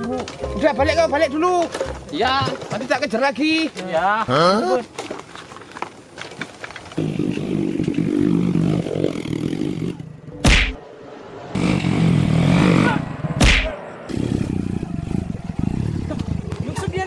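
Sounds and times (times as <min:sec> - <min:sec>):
sharp whack: 0:10.4 - 0:10.8, 0:13.4 - 0:13.8.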